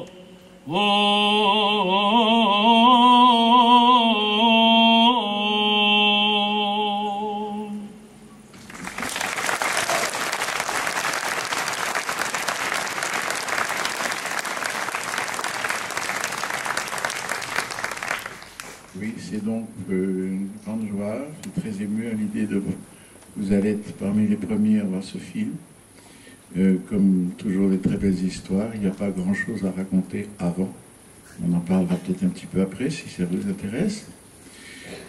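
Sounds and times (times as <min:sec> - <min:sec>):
man singing chant: 0:00.0 - 0:08.1
audience applause: 0:08.6 - 0:19.0.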